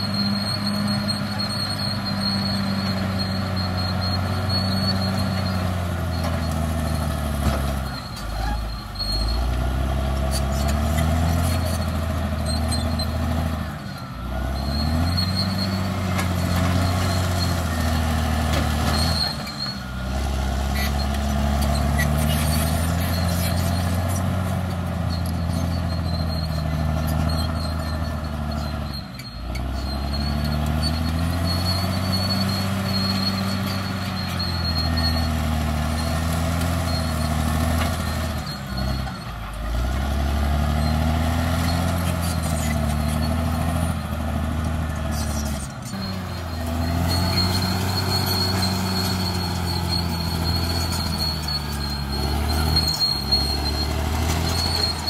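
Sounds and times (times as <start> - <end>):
bulldozer diesel engine under load: 0.0 - 55.0.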